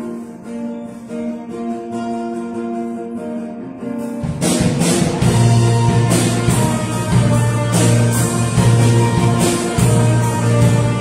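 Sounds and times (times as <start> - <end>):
guitar and keyboard chords: 0.0 - 11.0
drums and bass guitar: 4.0 - 11.0.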